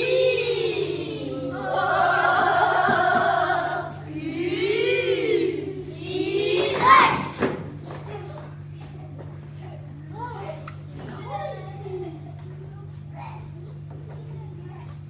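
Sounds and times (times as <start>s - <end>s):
children singing together: 0.0s - 7.4s.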